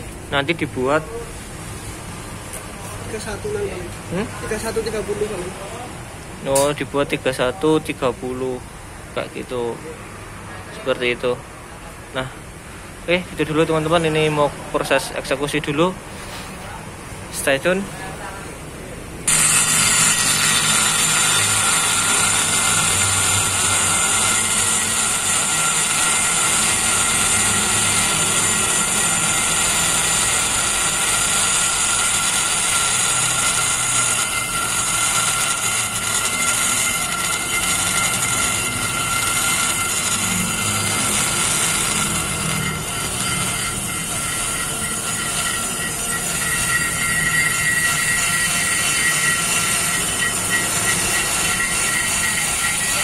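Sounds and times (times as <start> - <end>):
die grinder whining: 19.3 - 53.0.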